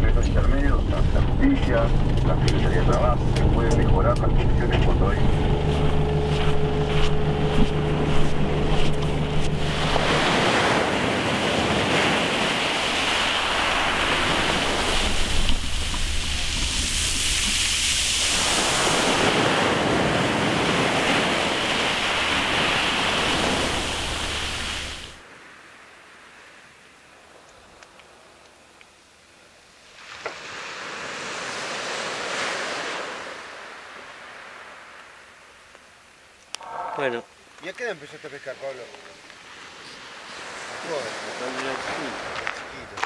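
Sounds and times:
car engine humming: 0.0 - 25.2
surf washing on shore: 0.0 - 28.8, 29.5 - 43.0.

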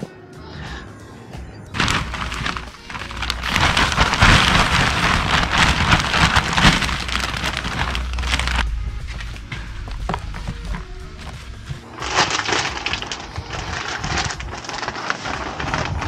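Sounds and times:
soil pouring into plastic planter: 1.8 - 8.6, 11.9 - 16.0.

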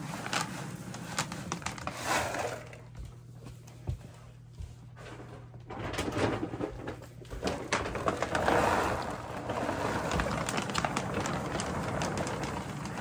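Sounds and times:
dry kibble pouring into plastic bin: 7.4 - 13.0.

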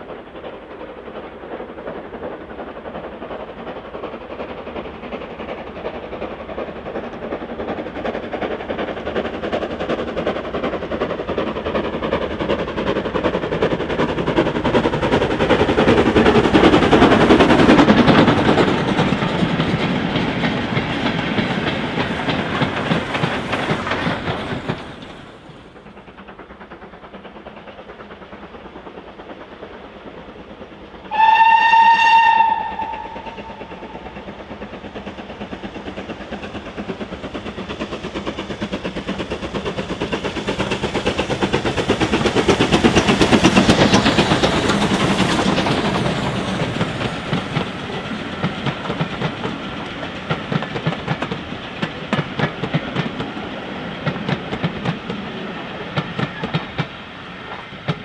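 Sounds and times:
steam locomotives chuffing: 0.0 - 58.0
train wheels clicking over rail joints: 0.0 - 58.0
steam whistle blast: 31.1 - 34.1.

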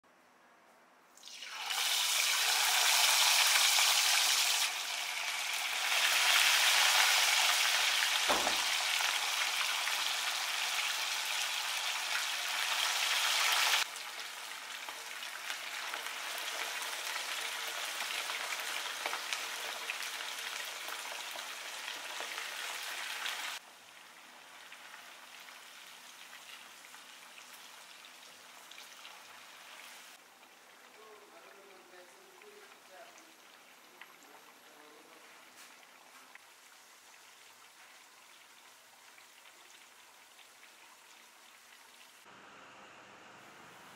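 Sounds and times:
fish sizzling in hot oil: 1.2 - 30.9
low knock: 8.3 - 8.8.

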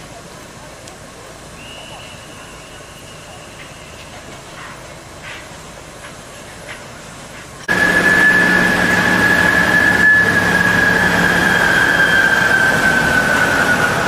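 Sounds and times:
steam locomotive hissing: 0.0 - 14.0
steady high tone: 7.7 - 14.0.

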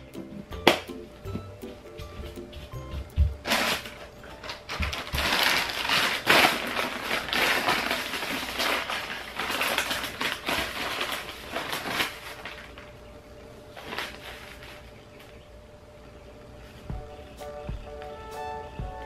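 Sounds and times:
plastic packaging crinkling: 3.4 - 13.0, 13.7 - 15.4.

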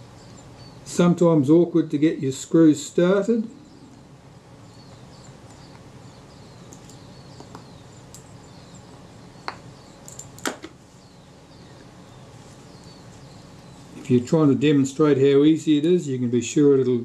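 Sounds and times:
small sharp metallic clicks: 10.0 - 10.6.

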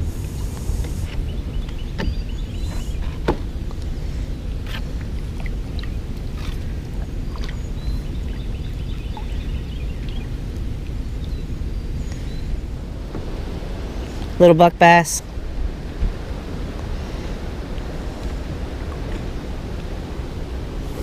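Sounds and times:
paddle splashing water: 0.0 - 11.0, 12.8 - 14.5
steady low rumble: 0.0 - 21.0
paddle knocking against kayak: 1.7 - 2.2.

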